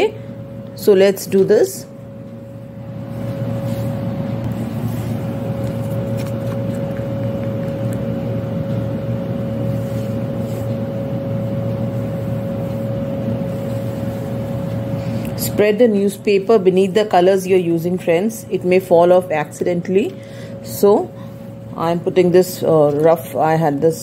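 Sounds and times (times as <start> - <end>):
machine hum with high whine: 0.0 - 24.0.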